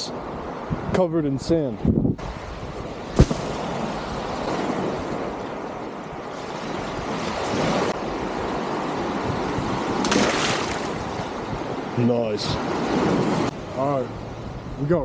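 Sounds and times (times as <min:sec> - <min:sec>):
wind on microphone: 0:00.2 - 0:15.0
surf washing on shore: 0:02.2 - 0:14.4
sharp knock: 0:03.2 - 0:03.6.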